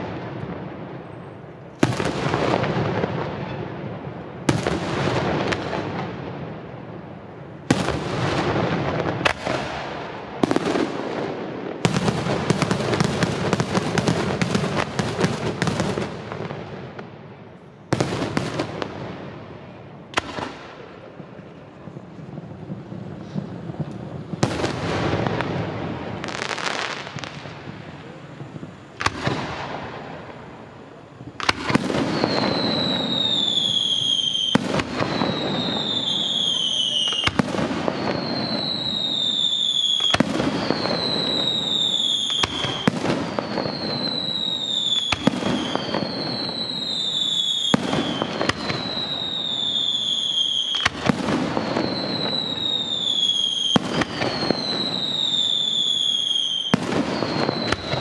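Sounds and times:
falling firework whistle: 0.0s - 6.4s, 21.6s - 58.0s.

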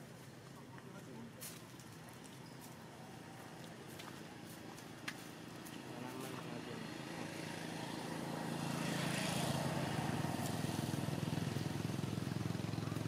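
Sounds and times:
vehicle engine humming: 2.8s - 13.0s.

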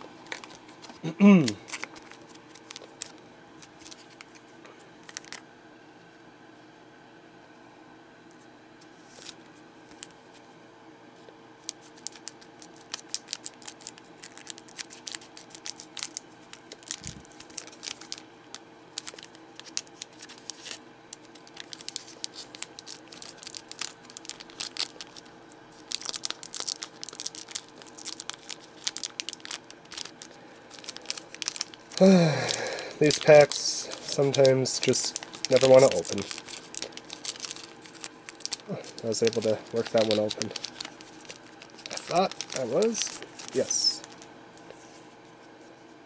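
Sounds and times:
wrapper crinkling and crackling: 0.1s - 5.4s, 11.6s - 44.3s.

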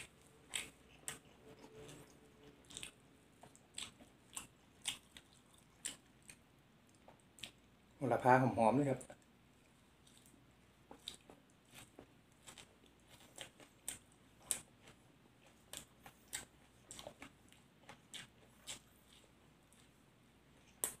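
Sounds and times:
person chewing leafy vegetables: 0.0s - 7.7s, 9.1s - 21.0s.

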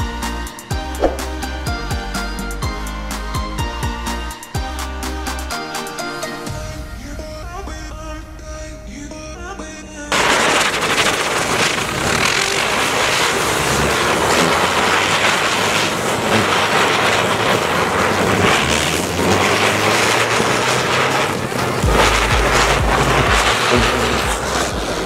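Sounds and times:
matches igniting crackling hiss: 10.1s - 25.0s.

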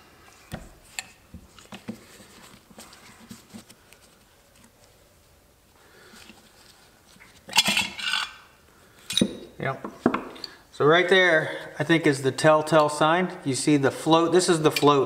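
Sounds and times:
metal part shifted in hands: 7.2s - 8.4s.

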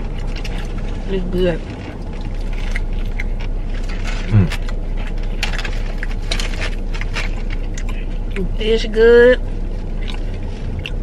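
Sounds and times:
steady low hum: 0.0s - 11.0s
food packaging crinkling: 1.7s - 8.3s
person murmuring mm: 4.3s - 4.6s.

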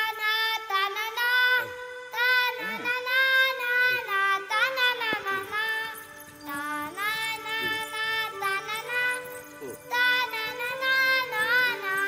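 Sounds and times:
held instrumental notes: 0.0s - 12.0s
high voice singing: 0.0s - 12.0s.

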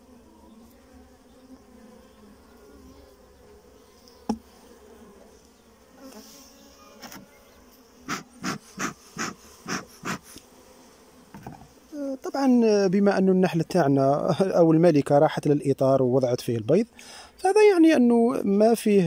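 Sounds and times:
honeybees humming: 0.0s - 19.0s
short bursts: 8.0s - 10.4s.

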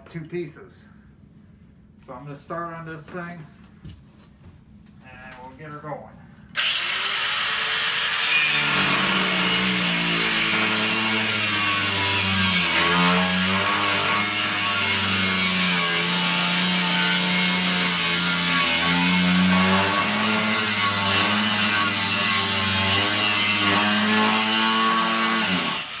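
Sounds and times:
grinder grinding cast iron: 6.6s - 26.0s.

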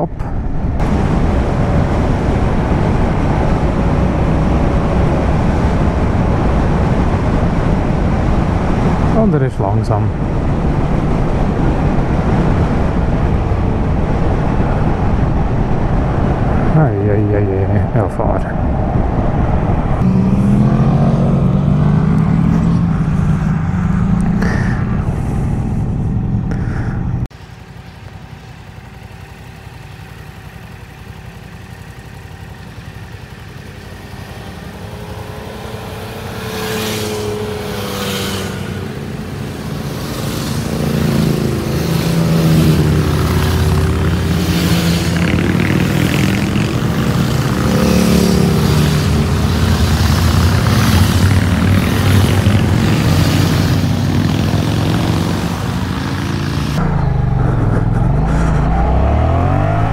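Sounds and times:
motorcycle engine revving: 18.7s - 59.9s.

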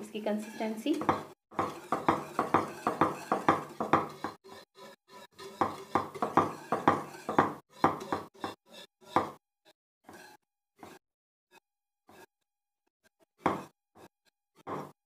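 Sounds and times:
spoon stirring in pot: 0.1s - 9.4s.

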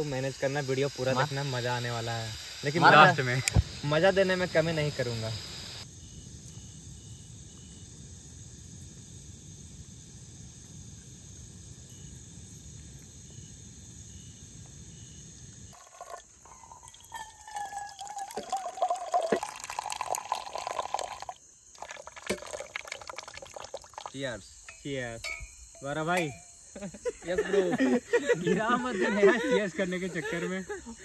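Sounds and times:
coffee pouring into cups: 15.8s - 24.5s
ringing tone of filling cup: 15.8s - 26.6s.

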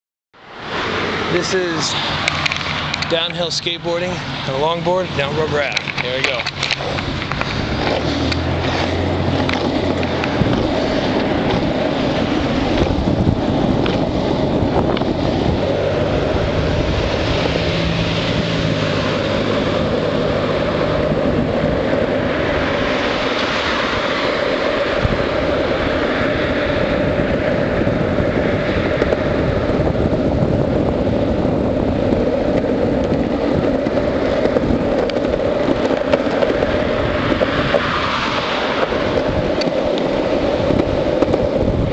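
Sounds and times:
longboard wheels rolling on asphalt: 0.4s - 41.9s
wind on microphone: 0.4s - 41.9s.

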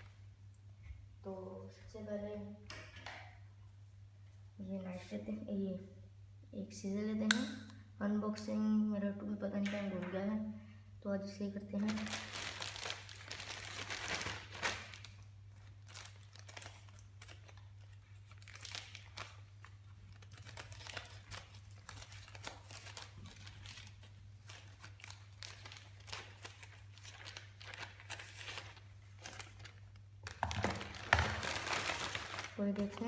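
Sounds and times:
plastic bag crinkling: 11.7s - 33.0s.

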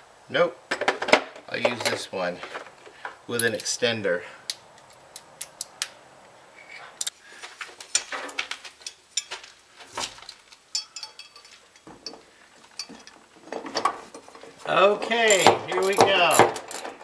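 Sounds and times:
ratchet and socket metal clicks: 15.3s - 16.9s.

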